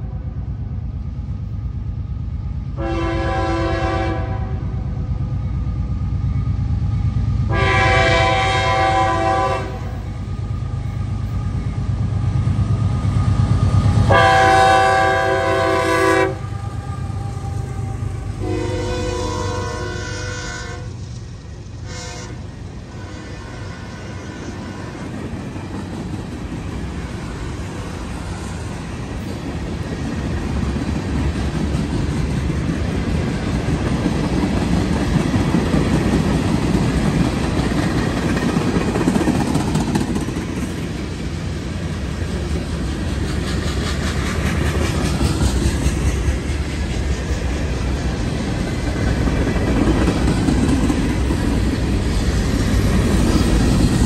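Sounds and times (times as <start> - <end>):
diesel locomotive engines rumbling: 0.0 - 54.0
train wheels on rails: 0.0 - 54.0
train air horn blasts: 2.8 - 4.7, 7.5 - 10.0, 14.1 - 21.0, 21.8 - 25.0.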